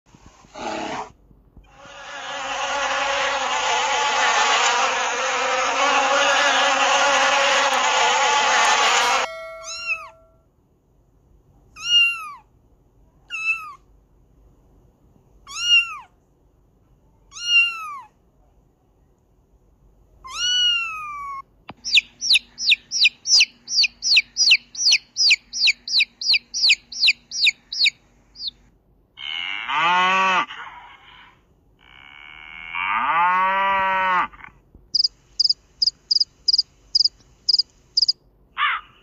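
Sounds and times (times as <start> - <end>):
mass of overlapping animal calls: 1.7 - 10.0, 21.8 - 28.6, 29.2 - 33.1, 34.1 - 35.5, 36.1 - 39.0
cat mewing: 11.8 - 12.4, 13.3 - 13.8, 15.5 - 16.1, 17.3 - 18.1, 20.2 - 26.0.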